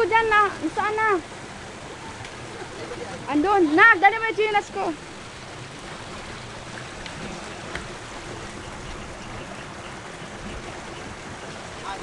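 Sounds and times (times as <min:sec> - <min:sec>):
stream water flowing: 0:00.0 - 0:12.0.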